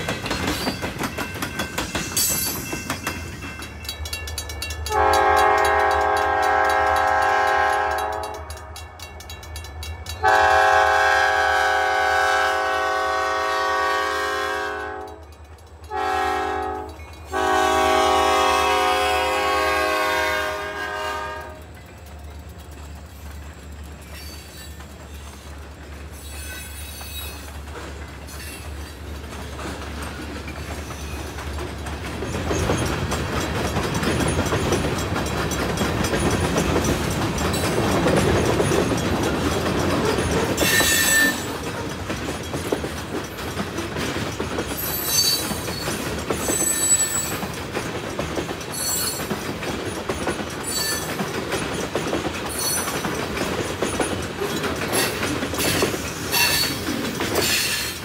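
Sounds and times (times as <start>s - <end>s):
clicking train wheels: 0.0s - 58.0s
freight train rumble: 0.0s - 58.0s
wheels squealing on rail: 15.9s - 31.5s, 32.1s - 35.1s, 35.7s - 42.8s, 44.7s - 47.6s, 48.6s - 58.0s.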